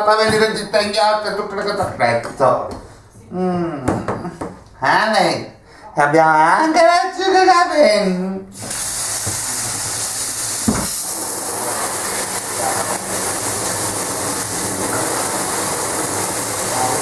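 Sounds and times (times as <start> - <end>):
hand-held shower spraying water: 8.6 - 17.0.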